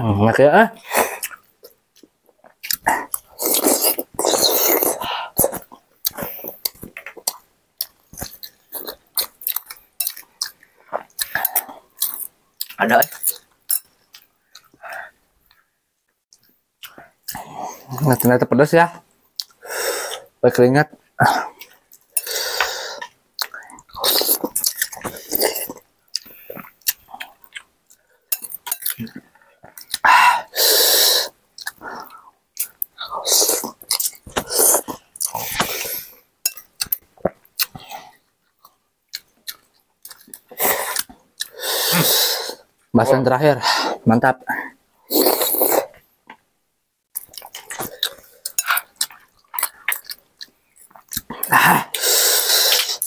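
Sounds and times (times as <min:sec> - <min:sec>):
person slurping and chewing: 0:02.5 - 0:15.2, 0:21.2 - 0:38.2, 0:39.1 - 0:42.7, 0:45.1 - 0:46.0, 0:47.2 - 0:53.0
slurping noodles: 0:02.8 - 0:05.6, 0:30.4 - 0:32.1, 0:45.1 - 0:46.0, 0:51.4 - 0:53.0.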